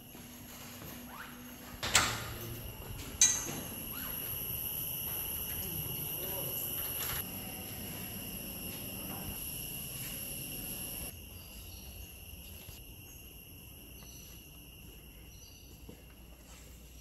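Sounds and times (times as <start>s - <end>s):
high-pitched ringing tone: 2.4s - 11.8s.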